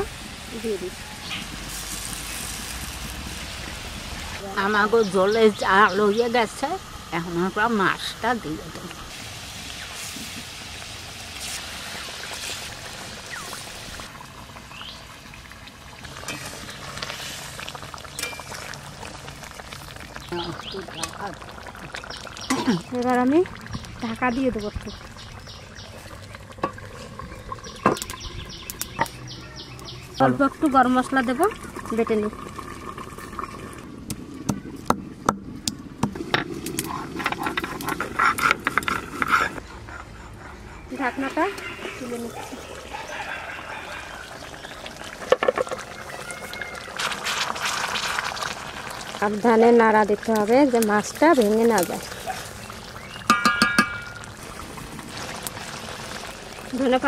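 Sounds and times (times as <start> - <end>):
gravy boiling in a wok: 0.0 - 39.6, 41.6 - 57.0
stone grinding on a slab: 37.2 - 39.6.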